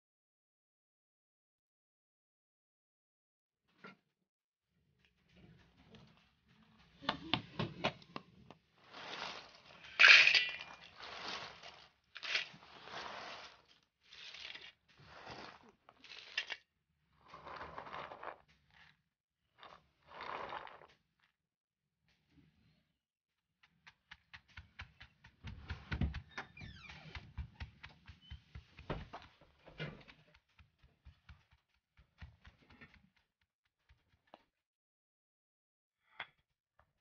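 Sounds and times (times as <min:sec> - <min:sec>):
rustling and scraping of walnuts: 0:08.6 - 0:16.6, 0:17.2 - 0:19.0, 0:19.6 - 0:20.9.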